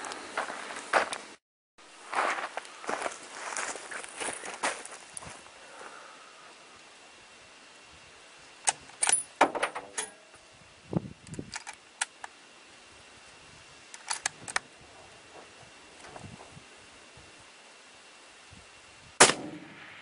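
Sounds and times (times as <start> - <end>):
metallic clicks and rattles: 13.9 - 14.6.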